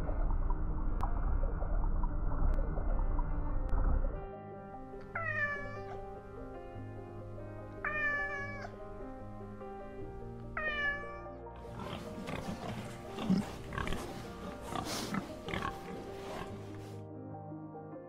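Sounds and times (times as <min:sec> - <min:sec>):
background music: 0:00.0 - 0:18.0
cat meowing: 0:05.1 - 0:06.0, 0:07.8 - 0:08.7, 0:10.6 - 0:11.3
pig grunting and snuffling: 0:11.6 - 0:17.0.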